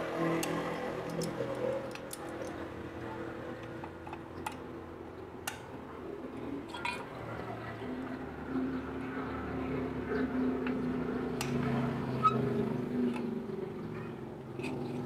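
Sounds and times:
pliers clicking on metal: 0.3 - 2.6.

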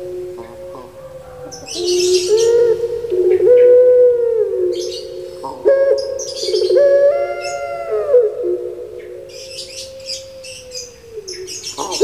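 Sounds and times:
dove cooing: 0.0 - 12.0.

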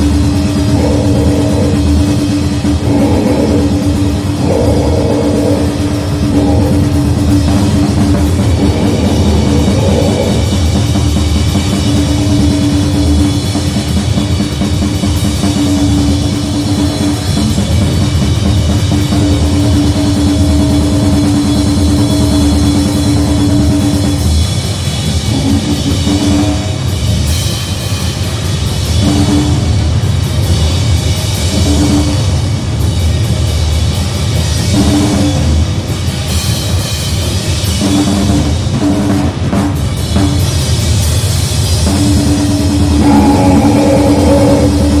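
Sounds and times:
distorted noise music: 0.0 - 27.3, 41.8 - 45.0
low drone: 0.0 - 30.1, 41.3 - 45.0
fast dense drumming: 0.0 - 45.0.

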